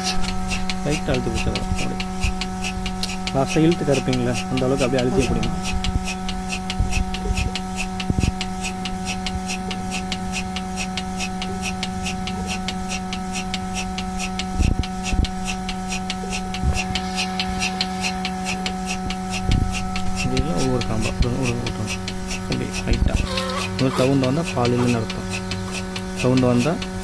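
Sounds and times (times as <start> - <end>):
milking machine electric hum: 0.0 - 27.0
rapid pulsing hiss: 0.0 - 27.0.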